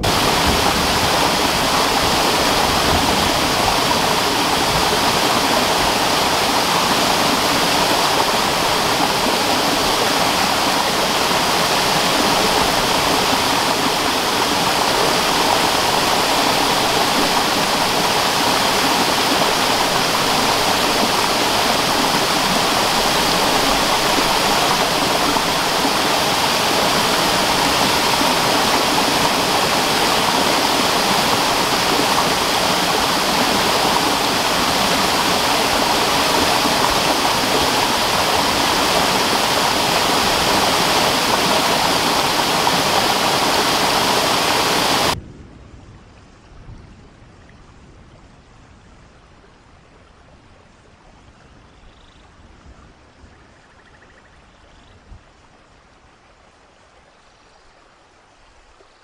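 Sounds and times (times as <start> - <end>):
waterfall rushing: 0.0 - 45.2.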